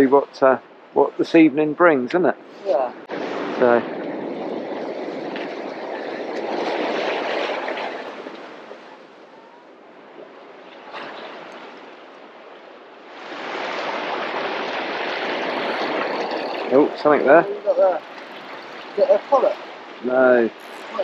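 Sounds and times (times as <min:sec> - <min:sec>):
sea wash: 0:00.0 - 0:21.0
wind rushing: 0:02.7 - 0:09.0.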